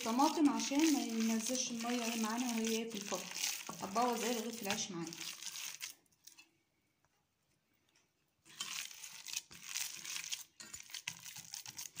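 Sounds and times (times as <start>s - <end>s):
meat squelching kneaded by hand: 0.0s - 6.0s, 8.5s - 12.0s.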